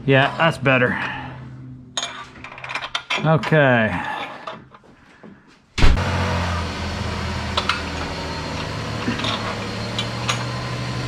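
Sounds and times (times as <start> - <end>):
low mechanical hum: 0.0 - 3.0, 5.8 - 11.0
thump: 5.8 - 6.0.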